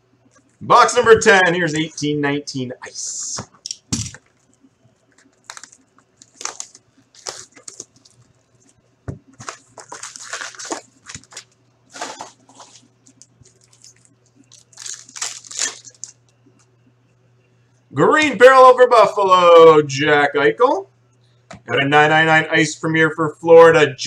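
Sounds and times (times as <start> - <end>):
foil wrapper tearing and crinkling: 5.1 - 16.3.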